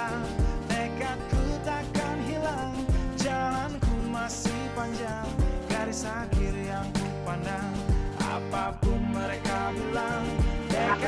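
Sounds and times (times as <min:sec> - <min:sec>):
background music with drum beat: 0:00.0 - 0:11.0.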